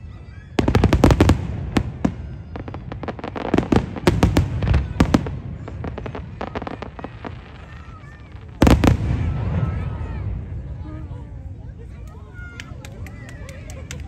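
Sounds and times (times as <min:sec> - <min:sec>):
fireworks bursting: 0:00.0 - 0:10.8.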